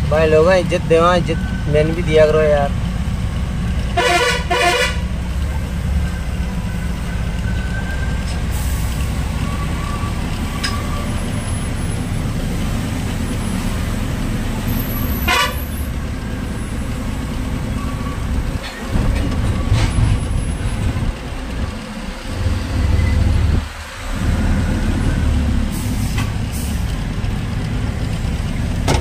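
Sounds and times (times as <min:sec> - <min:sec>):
truck engine running: 0:00.0 - 0:29.0
truck horn toots: 0:03.9 - 0:05.2, 0:15.0 - 0:15.9.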